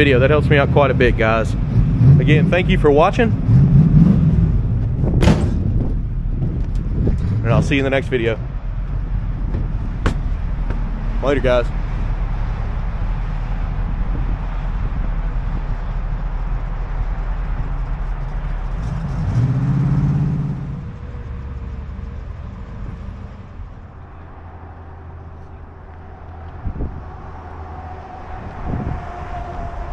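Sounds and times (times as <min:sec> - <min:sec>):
car engine running: 0:00.0 - 0:27.9
short knocks: 0:09.4 - 0:10.9.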